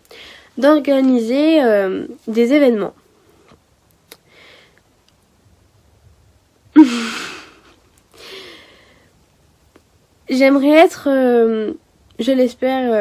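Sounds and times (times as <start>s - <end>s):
woman sighing: 6.8s - 9.0s
soft breath out: 8.1s - 9.1s.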